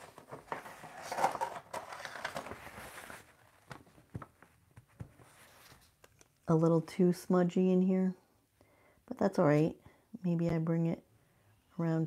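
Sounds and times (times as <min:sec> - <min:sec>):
paper towel rustling: 0:00.0 - 0:06.0.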